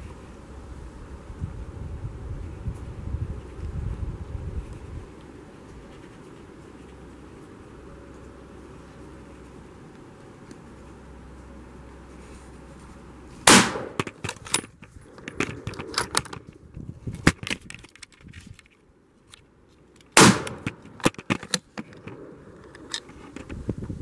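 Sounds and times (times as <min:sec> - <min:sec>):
rifle shots: 0:13.4 - 0:14.2, 0:20.2 - 0:20.8
clicks and knocks of handling: 0:13.9 - 0:23.6.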